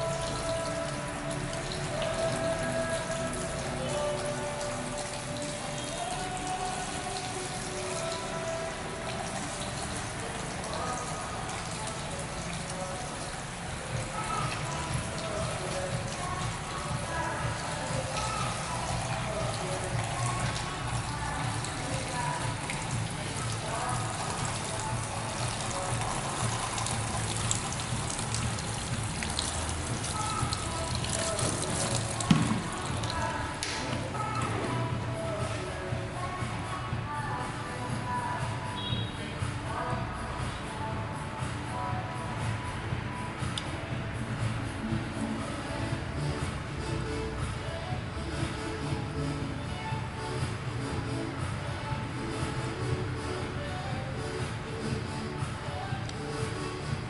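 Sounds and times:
shower head spraying water: 0.0s - 35.7s.

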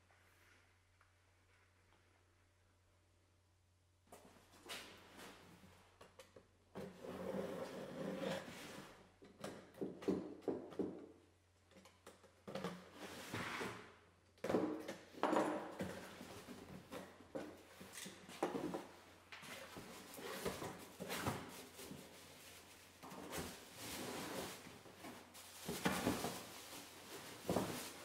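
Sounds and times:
cardboard flaps scraping and rustling: 18.6s - 28.0s.

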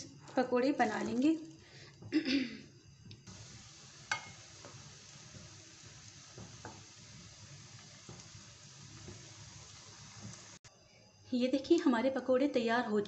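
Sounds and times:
batter sizzling in hot oil: 3.2s - 10.7s
spoon clicking against pan: 4.1s - 4.4s.

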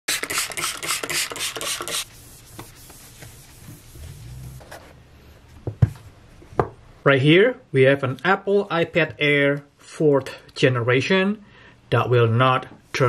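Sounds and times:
scratchy pulsing noise: 3.8s - 4.8s.

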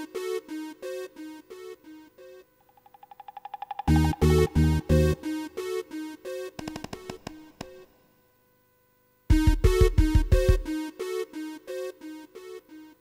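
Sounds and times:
electronic synthesizer music: 3.6s - 6.6s, 9.3s - 12.9s.

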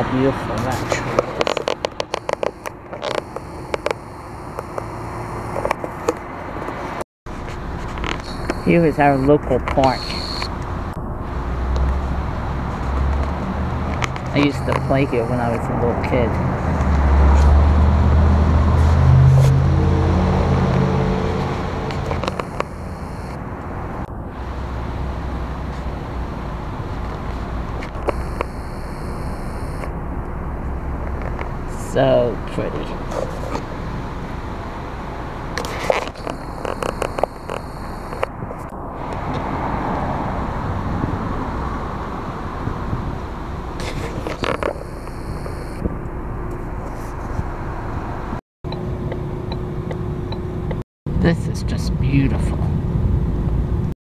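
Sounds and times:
road and engine rumble in car: 0.0s - 54.0s.

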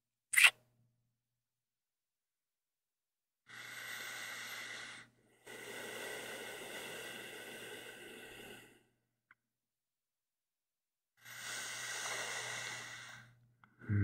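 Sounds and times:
man breathing slowly: 3.5s - 9.0s, 11.2s - 14.0s.

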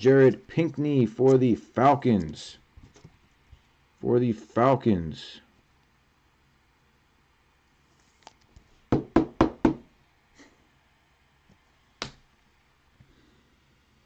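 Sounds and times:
knocks on hard surface: 8.9s - 9.8s.

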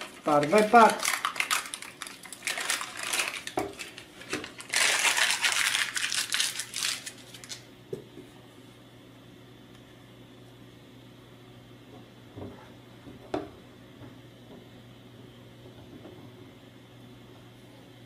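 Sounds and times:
paper crackling and tearing: 0.0s - 7.7s.

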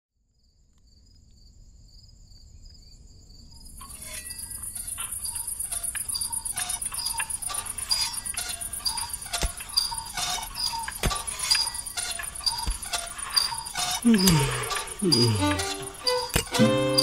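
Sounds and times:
insects chirping trill: 0.4s - 17.0s
higher insect trill: 3.6s - 17.0s.

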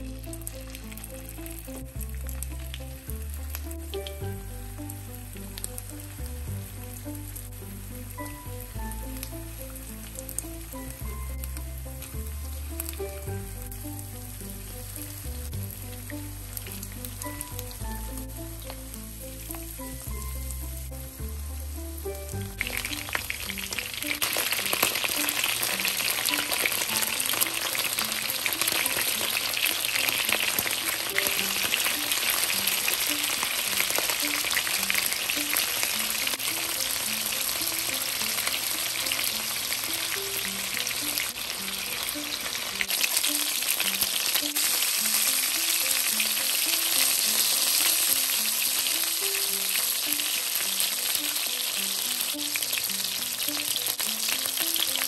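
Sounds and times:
chicken sizzling in oil: 0.0s - 55.0s
soft background music: 0.0s - 55.0s.

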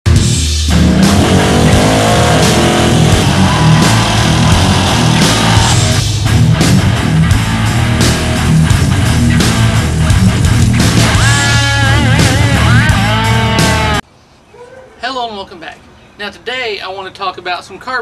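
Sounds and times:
rock music with electric guitar: 0.0s - 14.0s.

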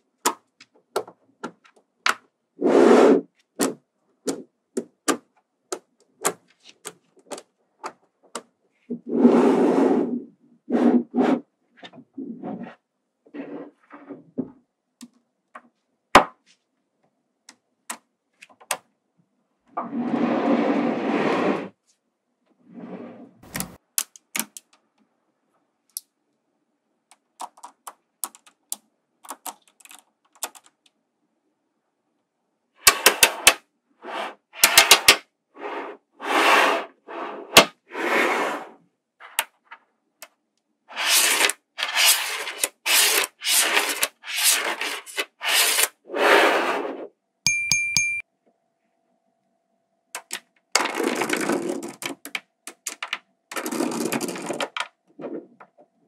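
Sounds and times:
magnetic balls clattering and scraping: 40.9s - 47.0s, 50.2s - 55.6s.

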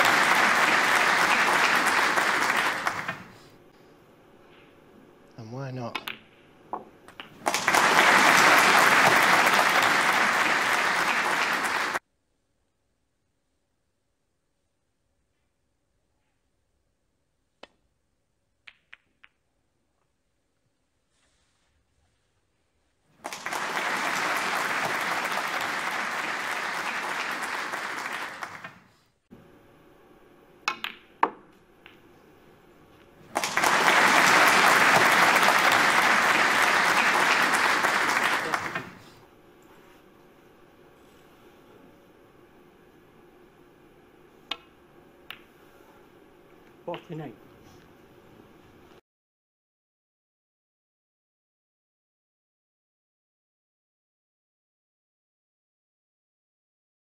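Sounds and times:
applause: 0.0s - 3.4s, 7.4s - 12.0s, 23.2s - 28.8s, 33.3s - 39.2s
snooker balls clicking: 5.9s - 7.7s, 18.6s - 19.5s, 30.7s - 32.2s, 44.4s - 45.6s
cue striking ball: 30.7s - 32.0s, 44.5s - 44.7s
snooker balls knocking together: 30.7s - 32.0s.

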